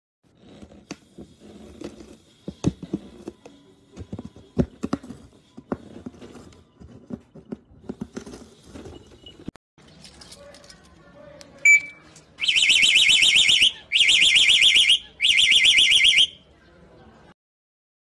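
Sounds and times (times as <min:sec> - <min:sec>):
cardboard rustling: 0:00.4 - 0:09.3.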